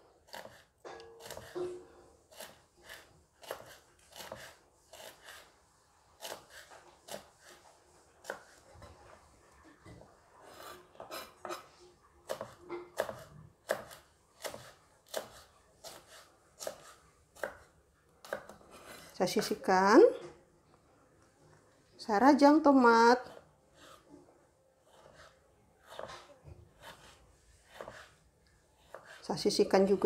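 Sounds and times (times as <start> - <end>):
knife chopping on wooden board: 0.3 - 5.5, 12.2 - 19.0, 24.9 - 28.2, 28.8 - 29.2.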